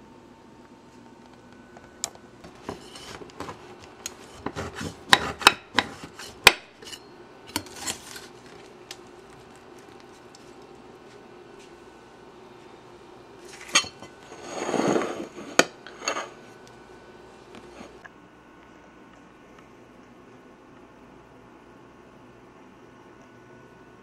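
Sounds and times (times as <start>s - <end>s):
knife crunching through pastry: 7.5s - 8.7s.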